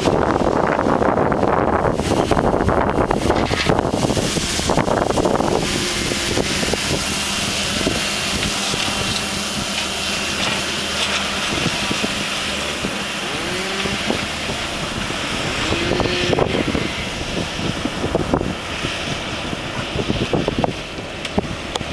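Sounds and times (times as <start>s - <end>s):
wind buffeting microphone: 0.0s - 21.9s
drone motors whining: 2.7s - 17.4s.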